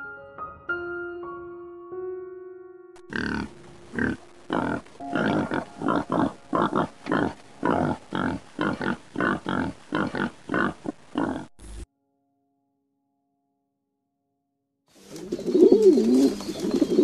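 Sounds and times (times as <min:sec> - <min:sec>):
pigs grunting: 0:03.1 - 0:11.5.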